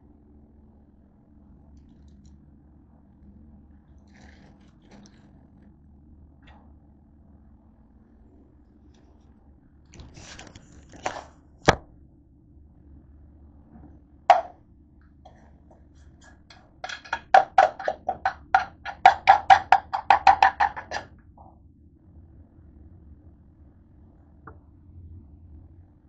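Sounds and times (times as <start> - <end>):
handling noise: 13.8 - 14.6, 16.0 - 21.1
object knocking down: 14.3 - 14.6.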